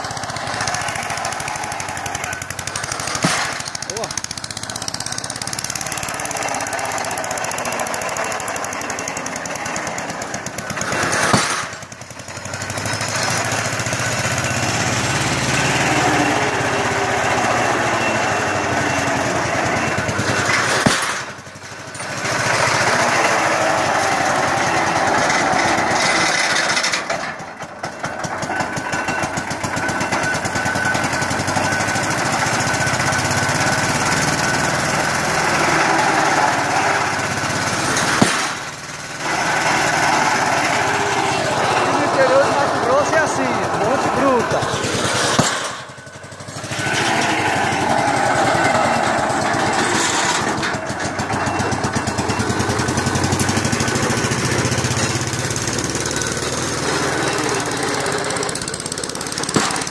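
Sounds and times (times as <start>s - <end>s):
heavy pile driver hammer blow: 0.0s - 42.8s, 43.6s - 59.9s
engine knocking rapidly: 0.0s - 59.9s.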